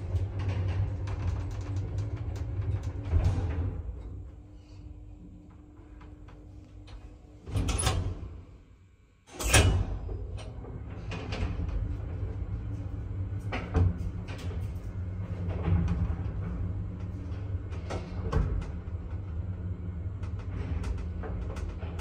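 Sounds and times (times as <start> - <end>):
lift car rumble and hum: 0.0 - 8.8, 9.4 - 22.0
lift door sliding shut: 9.3 - 12.3.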